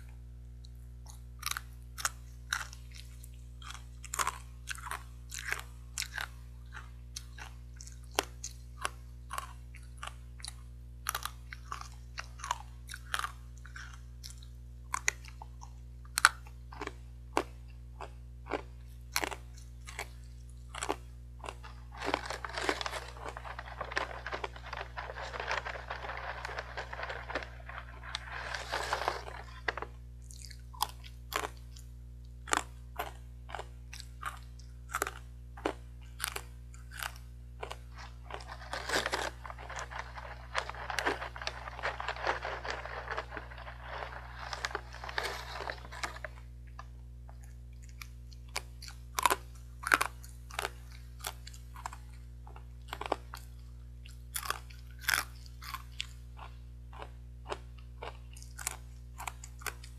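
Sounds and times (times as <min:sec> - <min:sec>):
crunchy snack being chewed: 0:00.0 - 0:59.9
snack bag crinkling: 0:20.7 - 0:30.6, 0:35.6 - 0:46.9, 0:57.0 - 0:59.9.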